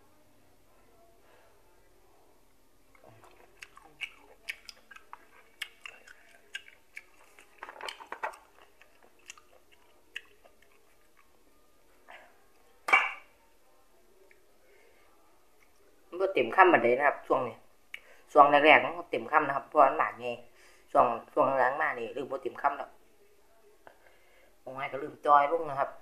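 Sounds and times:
wet chewing clicks and smacks: 3.0s - 11.4s.

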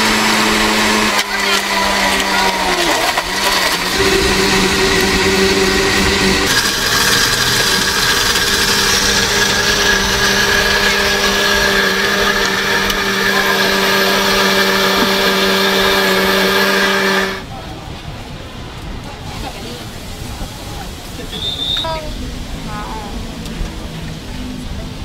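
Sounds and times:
blender crushing ice: 0.0s - 17.4s.

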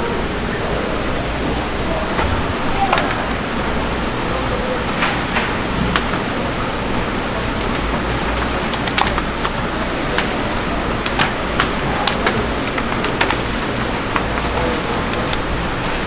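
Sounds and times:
fish slapping plastic crate: 5.0s - 15.5s.

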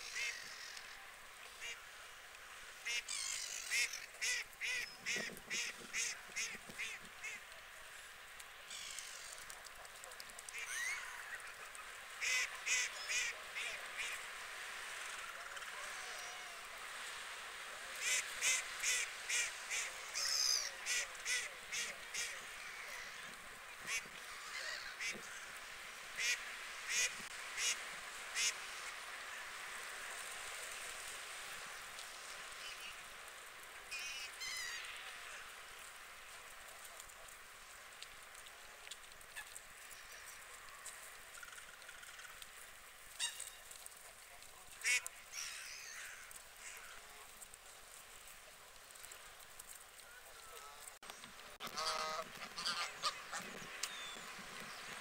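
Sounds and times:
waterfowl calling: 0.0s - 1.8s, 2.8s - 7.5s, 8.7s - 14.2s, 50.3s - 54.9s
faint steady hiss: 0.0s - 55.0s
goose honking: 51.6s - 53.6s.

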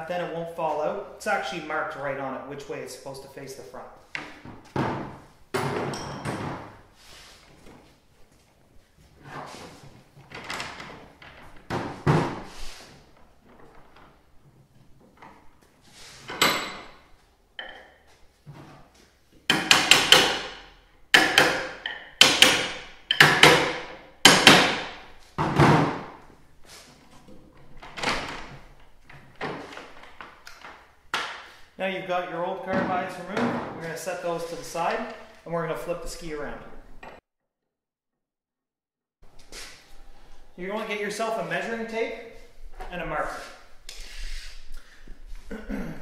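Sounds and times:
knocks and bangs on plastic ski: 21.2s - 26.2s.

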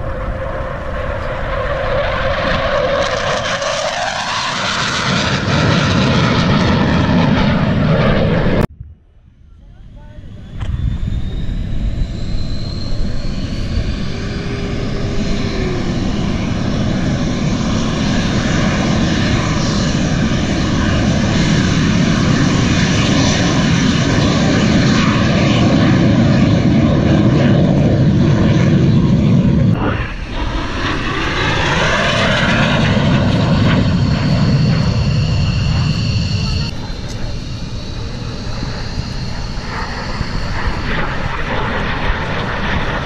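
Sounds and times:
jet engine roaring: 0.0s - 8.7s, 9.4s - 43.0s.

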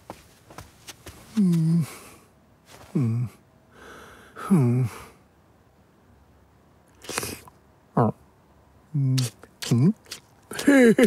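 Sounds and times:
breathy sound: 1.3s - 5.2s.

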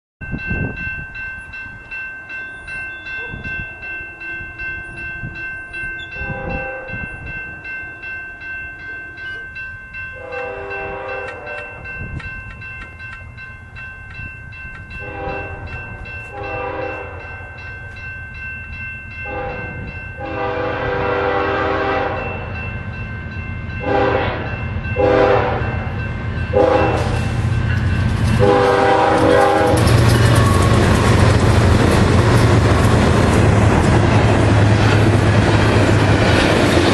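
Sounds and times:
crossing bell ringing: 0.2s - 36.9s
locomotive air horn blasts: 6.2s - 7.1s, 10.2s - 11.8s, 15.0s - 17.5s, 19.2s - 22.4s, 23.8s - 25.8s, 26.5s - 27.2s, 28.4s - 30.8s
locomotive engine rumble: 23.9s - 36.9s.

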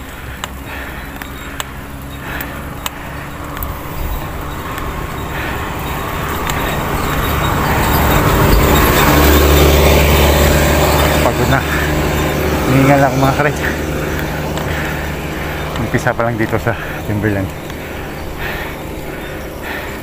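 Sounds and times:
motorcycle engine approaching: 0.0s - 20.0s
sharp clicks: 0.1s - 9.6s.

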